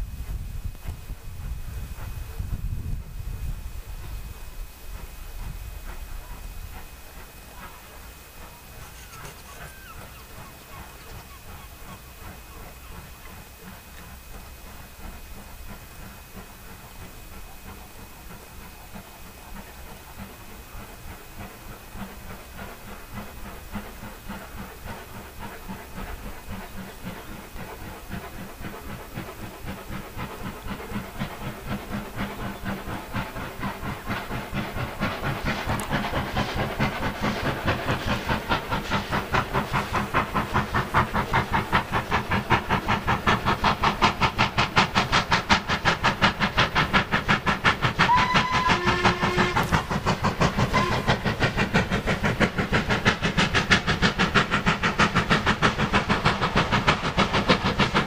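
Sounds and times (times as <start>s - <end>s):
steam locomotive exhaust beats: 0.0s - 58.0s
steam whistle blasts: 48.0s - 49.8s, 50.6s - 51.3s.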